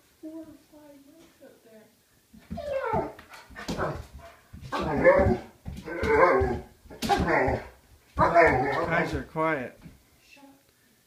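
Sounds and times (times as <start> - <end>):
dog barking: 6.0 - 9.0.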